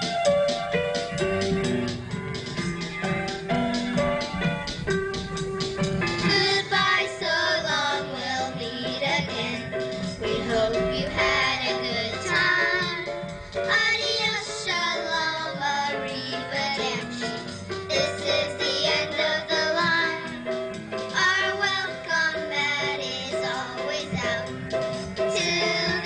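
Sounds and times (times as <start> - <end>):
instrumental backing track over speaker: 0.0 - 26.0
children singing: 6.0 - 20.4, 25.3 - 26.0.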